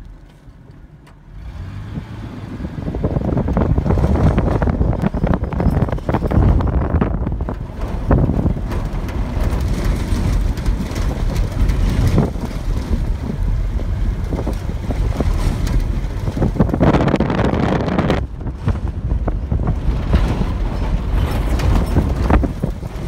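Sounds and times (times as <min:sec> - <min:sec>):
vehicle driving over rough ground: 0:00.0 - 0:23.0
wind buffeting microphone: 0:01.8 - 0:23.0
crackles and knocks: 0:03.7 - 0:23.0.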